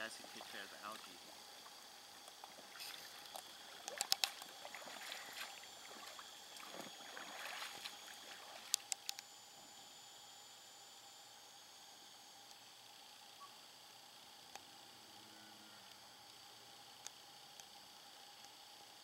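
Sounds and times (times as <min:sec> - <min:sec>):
small boat moving across water: 0:00.0 - 0:09.0
sharp clicks: 0:03.2 - 0:04.5.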